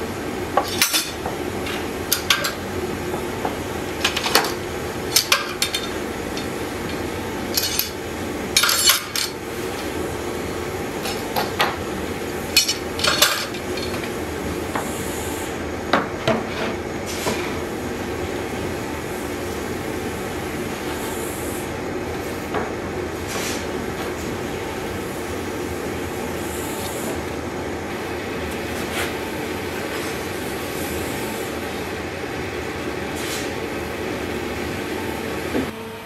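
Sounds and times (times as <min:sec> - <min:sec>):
steady low hum: 0:00.0 - 0:36.0
metal clamps clanking: 0:05.2 - 0:08.0.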